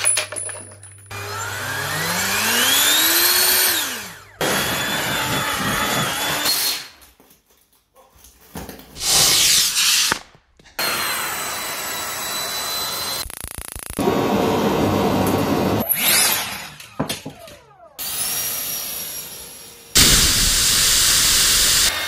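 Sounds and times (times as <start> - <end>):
loud fan blast: 20.0 - 22.0.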